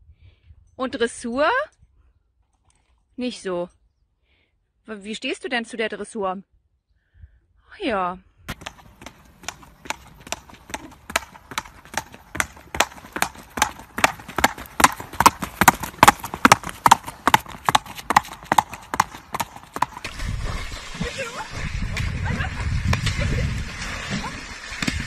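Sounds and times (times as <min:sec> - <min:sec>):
hooves trotting on asphalt: 0:08.5 - 0:21.5.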